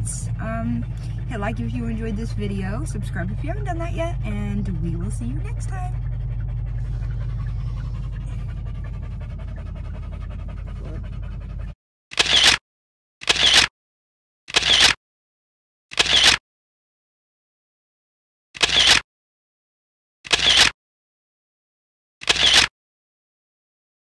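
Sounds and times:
car cabin rumble: 0.0s - 11.7s
dog panting: 0.1s - 11.8s.

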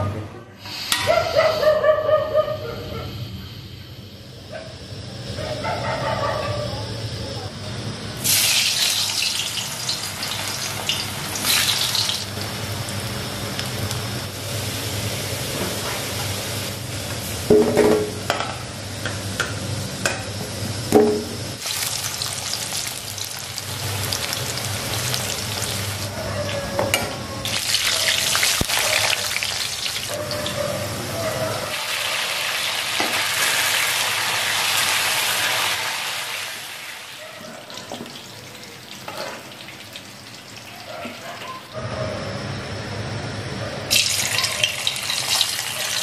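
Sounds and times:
hot oil sizzling in a wok: 7.9s - 26.2s, 27.4s - 40.7s, 43.9s - 46.0s.

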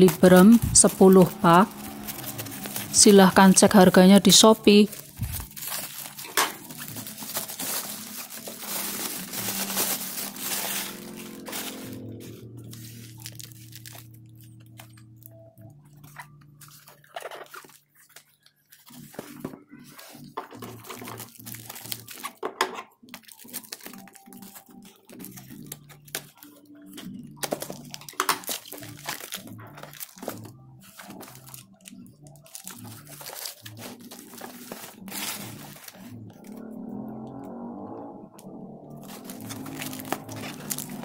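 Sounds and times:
cardboard rubbing and creasing: 0.0s - 3.0s, 4.9s - 14.1s, 32.5s - 36.6s, 39.0s - 41.0s
plastic wrap crinkling and tearing: 0.0s - 37.2s, 39.0s - 41.0s.

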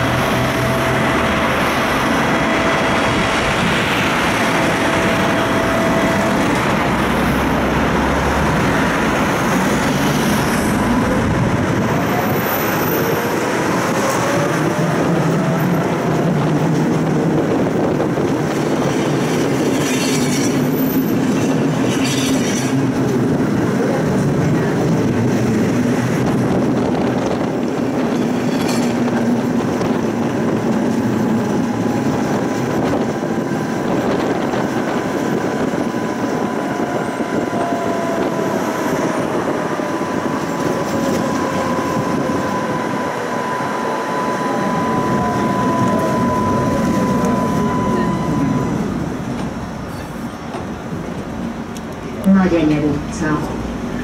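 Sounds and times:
tram rolling rumble: 0.0s - 54.0s
faint rising whine: 41.2s - 49.6s.

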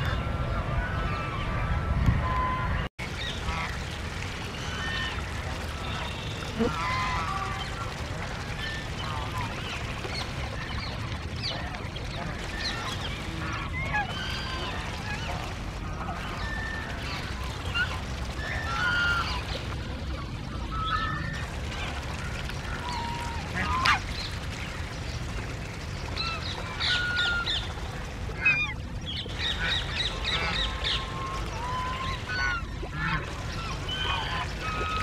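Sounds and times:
waterfowl honking and quacking: 3.4s - 3.8s, 4.6s - 9.8s, 10.6s - 19.6s, 22.6s - 24.2s, 26.2s - 27.7s, 28.3s - 35.0s.

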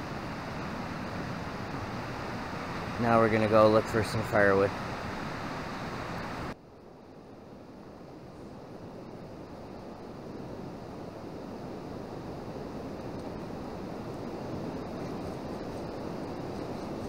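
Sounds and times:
rushing mountain river: 0.0s - 6.6s.

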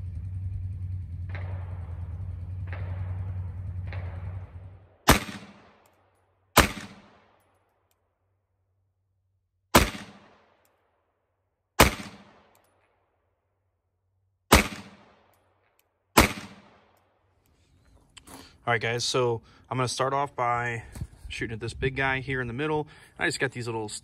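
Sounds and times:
pistol shots with echo: 1.3s - 7.6s, 9.7s - 10.7s, 11.8s - 12.7s, 14.5s - 15.4s, 16.1s - 17.0s.

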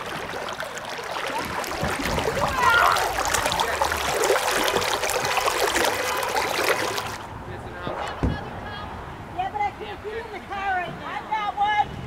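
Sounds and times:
paddle strokes splashing: 0.0s - 7.3s
river water rushing over rocks: 0.0s - 7.3s.

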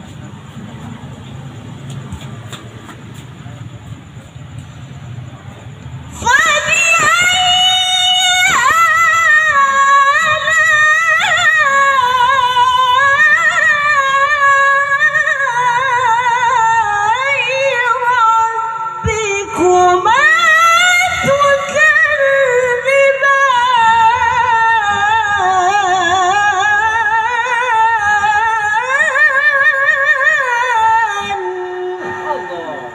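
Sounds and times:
woman chanting into a microphone: 6.2s - 32.9s.

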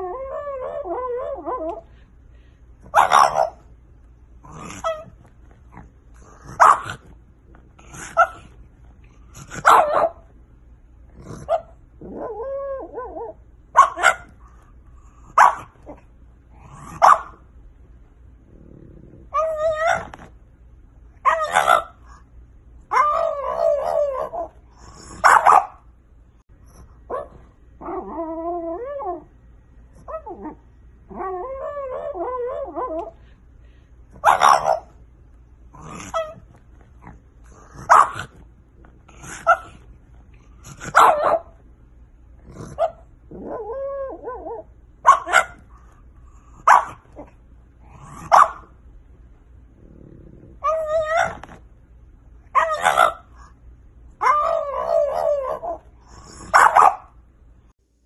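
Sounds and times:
dog whining: 0.0s - 2.0s, 4.4s - 6.9s, 11.2s - 13.4s, 19.2s - 20.3s, 22.9s - 25.6s, 27.1s - 29.3s, 30.0s - 33.2s, 35.8s - 36.6s, 42.6s - 45.6s, 50.5s - 51.6s, 54.2s - 57.0s
dog woofing: 4.4s - 7.2s, 35.8s - 38.5s, 40.6s - 41.5s.

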